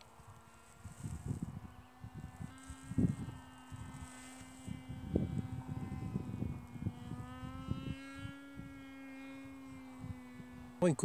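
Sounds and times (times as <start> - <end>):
distant drone propeller motor: 0.0 - 11.0
low gusty rumbling: 0.8 - 10.6.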